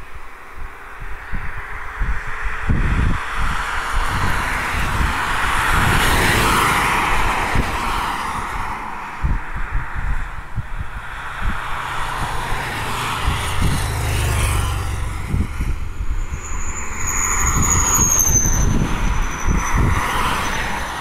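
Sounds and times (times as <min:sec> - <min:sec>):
wind buffeting microphone: 0:00.0 - 0:21.0
car driving past: 0:11.1 - 0:21.0
motorcycle driving past: 0:11.7 - 0:18.8
thin high whistle: 0:16.0 - 0:20.9.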